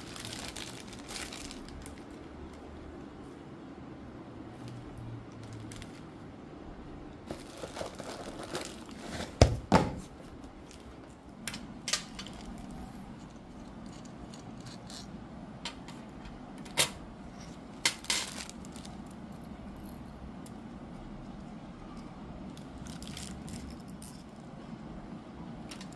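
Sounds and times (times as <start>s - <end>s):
plastic wrapping crinkling: 0.0s - 2.3s, 5.3s - 6.2s, 7.3s - 9.6s, 17.9s - 19.1s, 22.8s - 23.7s.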